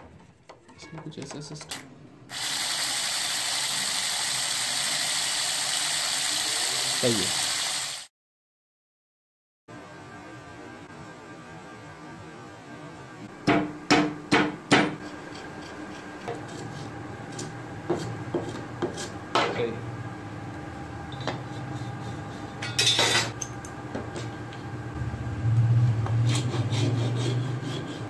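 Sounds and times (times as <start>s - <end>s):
low rumble: 25.0s - 26.3s.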